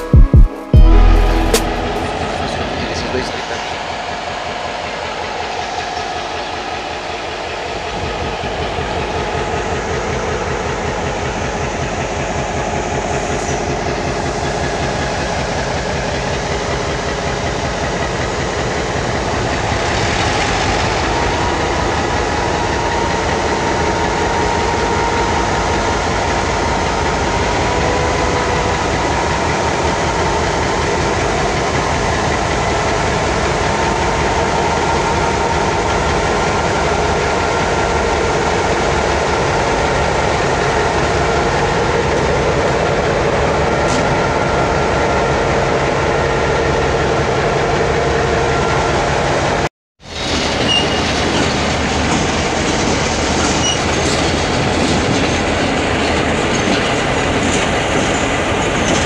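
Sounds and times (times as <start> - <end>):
locomotive engine running: 0.0 - 59.0.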